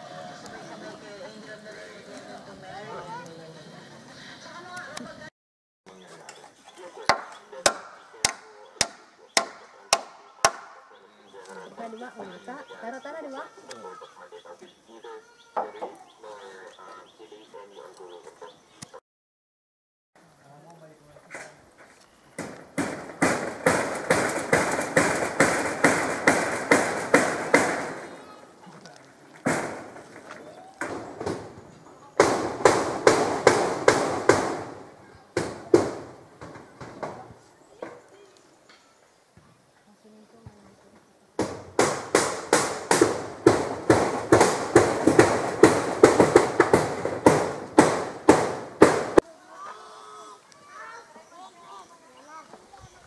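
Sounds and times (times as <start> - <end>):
hammer striking metal roofing: 22.4 - 28.2, 29.4 - 30.2, 32.2 - 37.3, 41.4 - 49.2.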